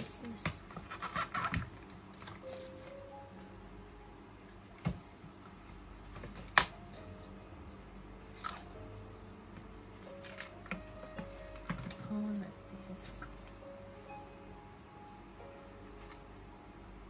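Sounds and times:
paper packaging rustling: 0.6 - 3.1
card snapping and tapping: 6.2 - 6.8.

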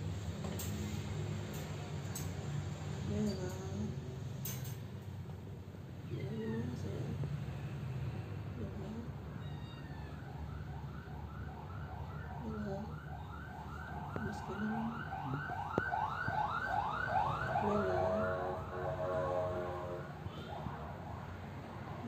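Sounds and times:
emergency siren yelping: 9.9 - 22.0.

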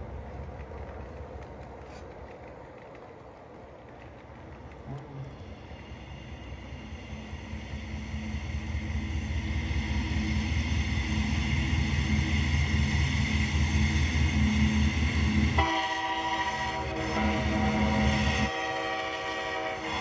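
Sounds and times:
train engine and rail rumble: 0.0 - 20.0
locomotive air horn: 15.6 - 20.0.

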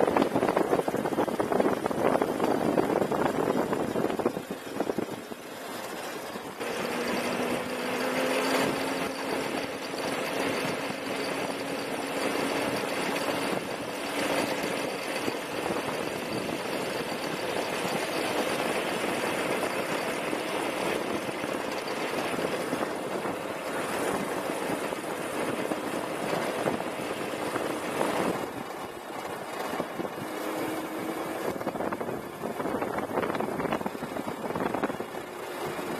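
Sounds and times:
kart rattling: 0.0 - 35.9
tyre and road noise: 0.0 - 35.9.

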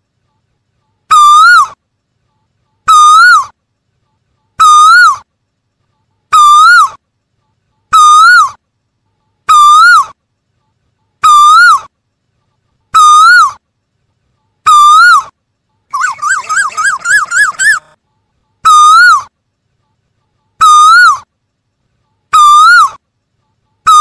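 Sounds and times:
koel calling: 15.9 - 18.0, 18.7 - 19.3, 20.6 - 21.2.

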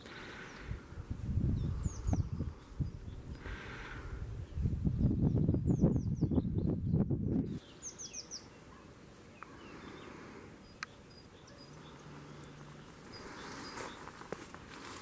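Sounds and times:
small birds chirping: 0.0 - 14.7
low rumble on microphone: 0.7 - 7.6.

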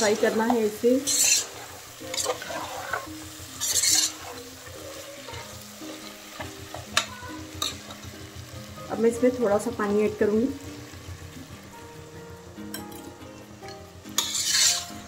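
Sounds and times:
spatula scraping pot: 0.0 - 8.0, 14.1 - 15.0
meat sizzling: 0.0 - 15.0.

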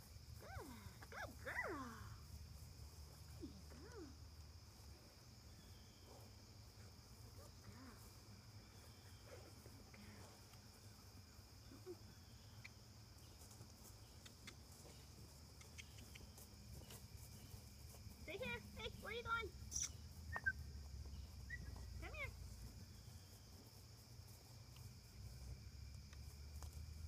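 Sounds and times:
crickets chirring: 0.0 - 27.0
faint ticks: 10.4 - 10.7, 13.4 - 17.0, 24.7 - 27.0.

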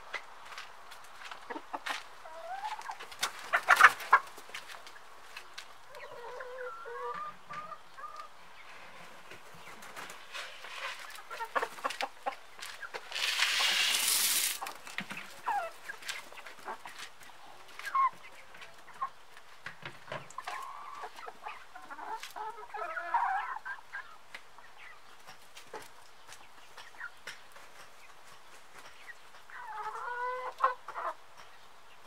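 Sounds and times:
hens pecking feed: 0.0 - 31.7
hens clucking: 0.1 - 32.0.

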